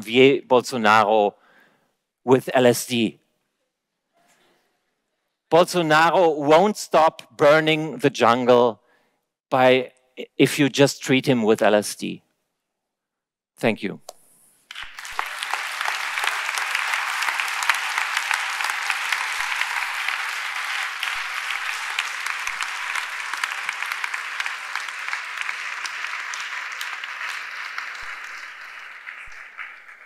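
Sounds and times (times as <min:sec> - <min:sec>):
audience applauding: 0:14.7 - 0:30.0.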